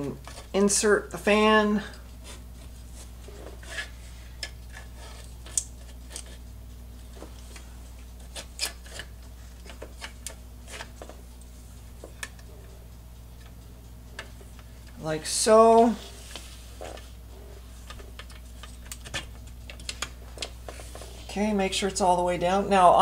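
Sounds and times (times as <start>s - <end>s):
plastic fan clicks and scrapes: 0.0s - 0.8s, 3.5s - 6.5s, 7.1s - 11.2s, 17.8s - 21.1s
steady low hum: 0.0s - 23.0s.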